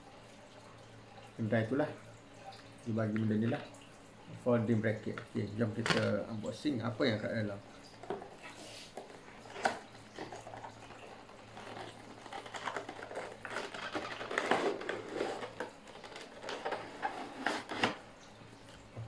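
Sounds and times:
packaging clicks and rustles: 8.0s - 18.0s.

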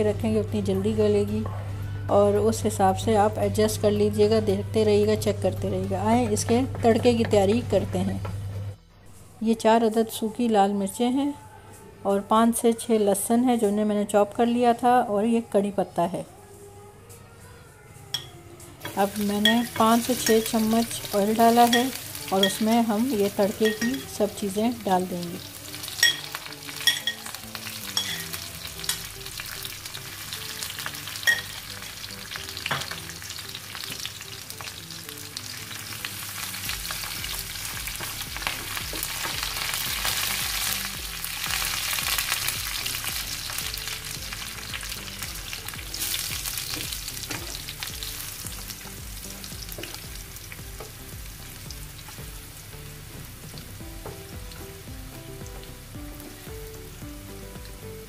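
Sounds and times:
spices sizzling in hot oil: 18.8s - 58.0s.

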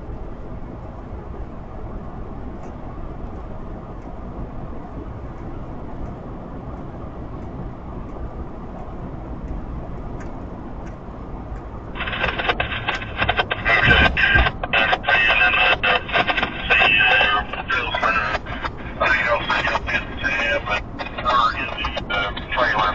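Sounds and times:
faint regular ticking: 5.3s - 22.9s
diesel locomotives idling: 8.0s - 22.9s
crackly radio transmission: 11.8s - 22.9s.

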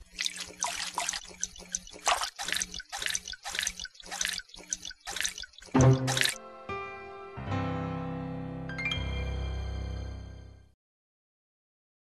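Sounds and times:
water dripping: 0.0s - 6.4s.

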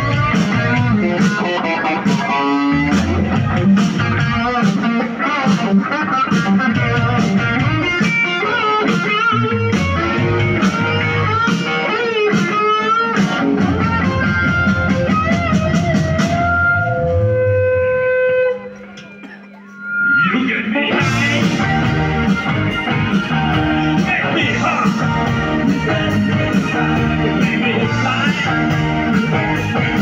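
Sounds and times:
drums keeping a steady beat: 0.0s - 19.9s, 20.8s - 30.0s
blues-rock band playing: 0.0s - 30.0s
electric guitar lead: 0.0s - 30.0s.

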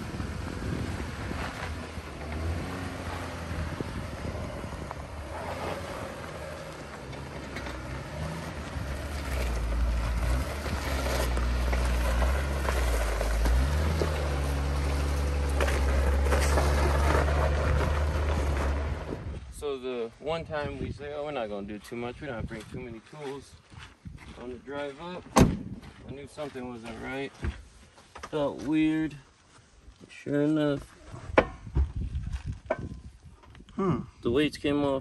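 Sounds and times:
wind buffeting microphone: 0.0s - 6.0s, 17.7s - 19.6s, 31.1s - 33.8s
vehicle engine hum: 0.0s - 19.5s.

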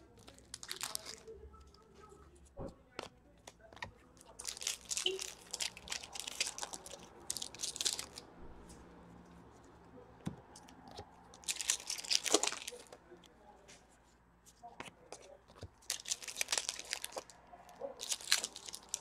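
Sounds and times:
foil wrapper tearing and crinkling: 0.2s - 1.2s, 4.3s - 8.2s, 11.4s - 12.9s, 15.8s - 17.4s, 18.0s - 19.0s.

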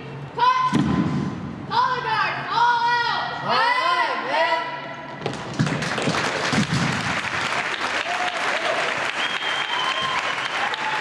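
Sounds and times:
audience applauding: 5.4s - 11.0s
short cheering calls: 8.0s - 11.0s.

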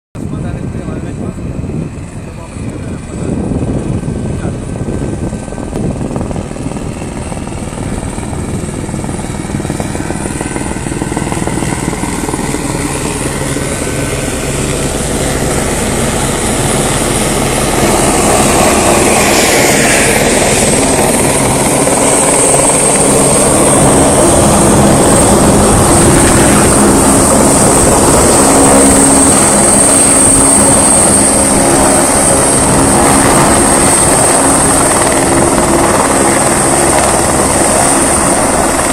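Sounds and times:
helicopter rotor beat: 0.2s - 38.9s
turbine whine: 0.2s - 38.9s.

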